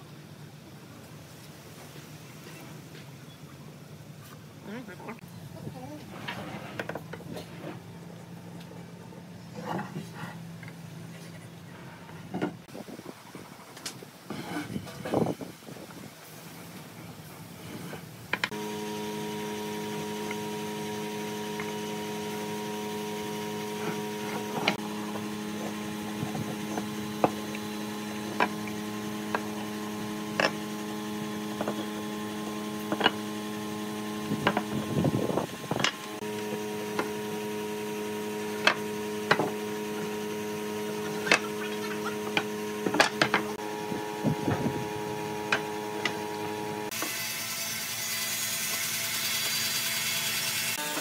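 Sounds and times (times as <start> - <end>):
electrical hum: 16.4 - 47.0.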